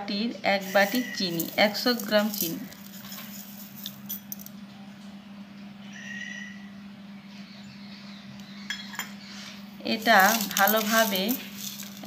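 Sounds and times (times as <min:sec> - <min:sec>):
spoon scraping in a pan: 0:00.6 - 0:04.1.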